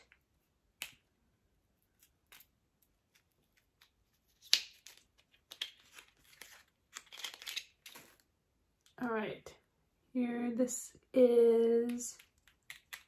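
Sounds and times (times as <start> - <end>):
packaging rustling: 4.4 - 8.2.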